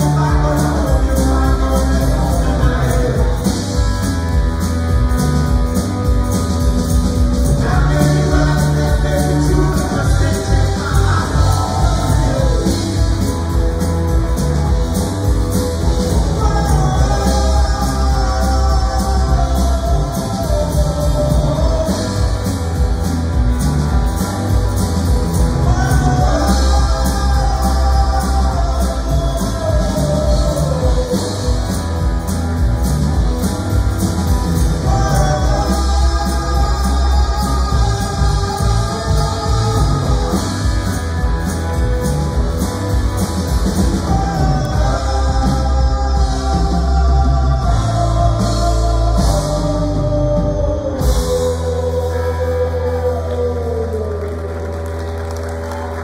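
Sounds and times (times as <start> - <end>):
live rock band playing: 0.0 - 56.0.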